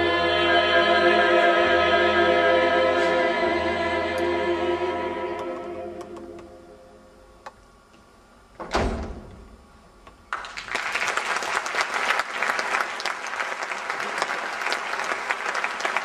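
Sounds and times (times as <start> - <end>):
applause: 10.3 - 16.0.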